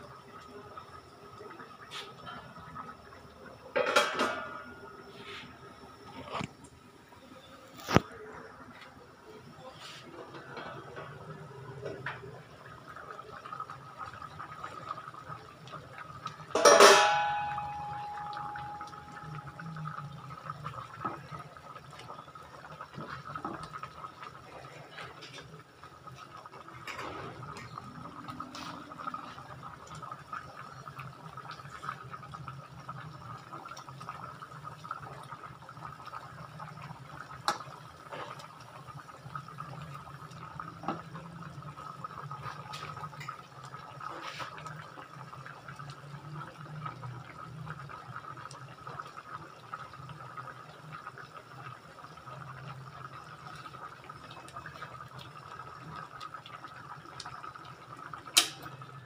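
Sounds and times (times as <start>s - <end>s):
stew bubbling in a pot: 0.0s - 59.0s
metal pot lid ringing: 16.6s - 19.6s.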